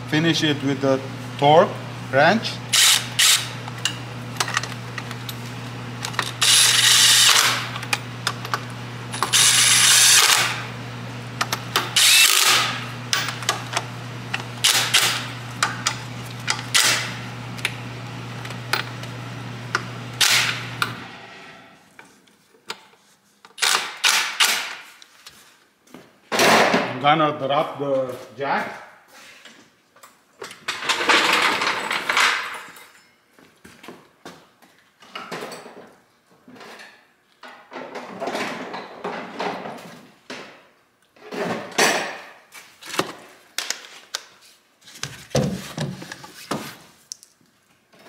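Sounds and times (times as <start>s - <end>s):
impact wrench bursts: 2.7s - 4.7s, 6.1s - 7.8s, 9.1s - 10.7s, 11.7s - 13.6s, 14.6s - 15.8s, 20.2s - 21.1s.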